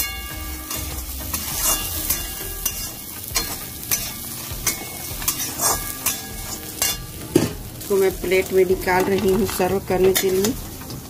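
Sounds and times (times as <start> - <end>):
metal spatula scraping a wok: 0.0 - 11.0
dry snack mix rattling: 8.2 - 11.0.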